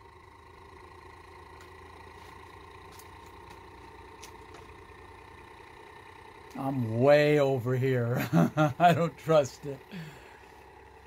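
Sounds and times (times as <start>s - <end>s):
motor rotor humming and whirring: 0.0s - 6.9s.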